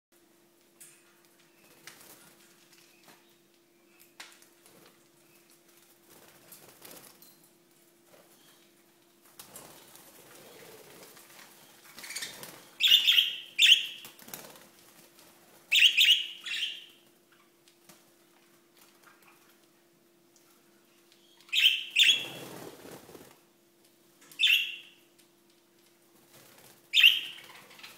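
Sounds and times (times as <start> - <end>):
birds flapping wings: 5.7 - 7.2, 9.2 - 12.8, 14.0 - 15.4, 22.0 - 23.4.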